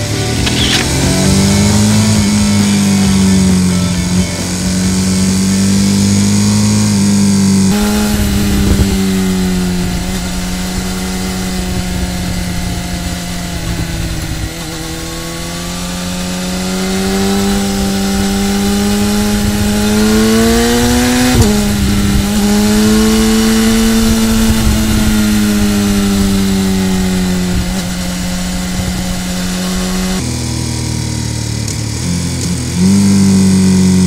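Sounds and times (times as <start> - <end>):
motorcycle engine revving: 0.0 - 34.0
gear shift click: 0.4 - 1.2
wind rushing: 7.8 - 30.2.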